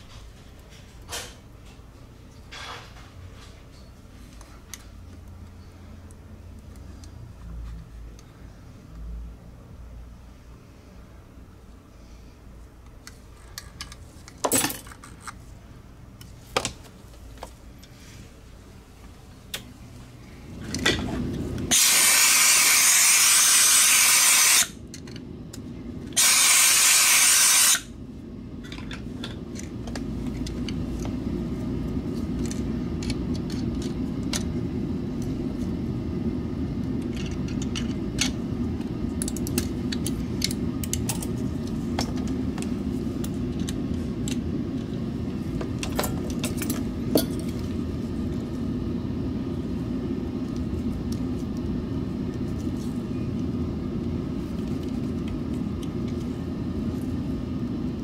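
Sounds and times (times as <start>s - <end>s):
steady low hum: 0.0s - 58.0s
compressed air hissing: 21.6s - 24.8s, 26.2s - 27.9s.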